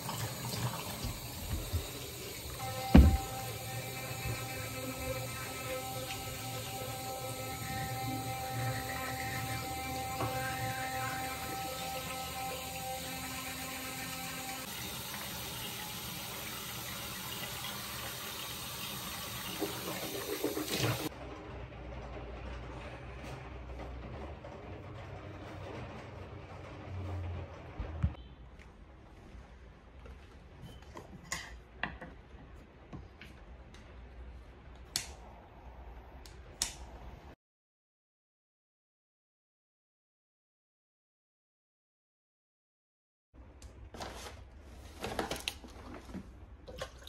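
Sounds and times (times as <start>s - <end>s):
water splashes in sink: 0.0s - 6.9s, 11.1s - 21.1s
sink tap running: 0.0s - 21.1s
electric toothbrush humming: 1.0s - 21.1s.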